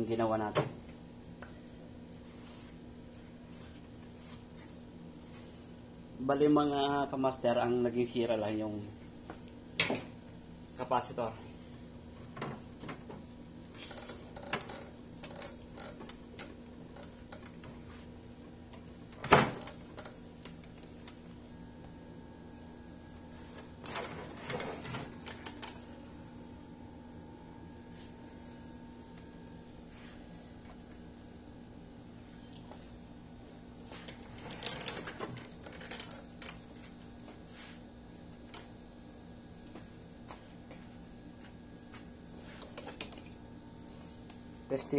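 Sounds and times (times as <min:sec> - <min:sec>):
faint steady hum: 0:00.0 - 0:44.9
hands handling wires and plastic: 0:34.0 - 0:37.0.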